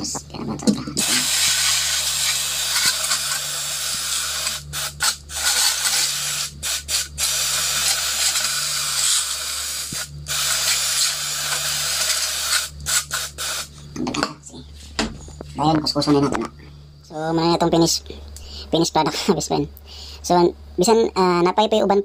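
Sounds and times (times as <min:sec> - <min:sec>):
aerosol can spraying: 0:01.0 - 0:13.7.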